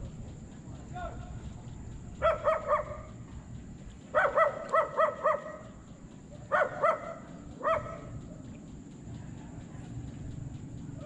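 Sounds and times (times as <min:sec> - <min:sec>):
dog barking: 0:02.2 - 0:03.1, 0:04.1 - 0:05.7, 0:06.5 - 0:08.2.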